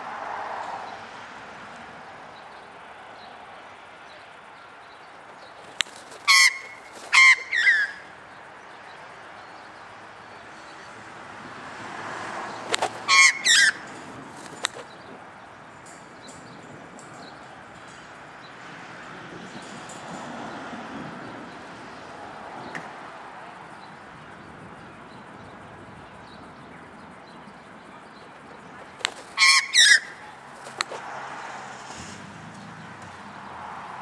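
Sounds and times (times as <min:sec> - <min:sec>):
bill snapping clicks: 0:05.6 - 0:07.2, 0:12.6 - 0:13.4, 0:14.4 - 0:15.1, 0:28.2 - 0:31.0
magpie harsh calls: 0:05.9 - 0:08.1, 0:12.8 - 0:13.8, 0:29.0 - 0:30.9.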